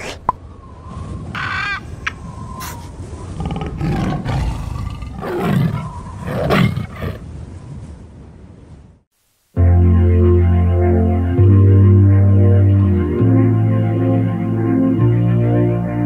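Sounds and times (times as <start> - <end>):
higher animal calls: 1.3 - 7.2
big cat roars: 2.6 - 7.2.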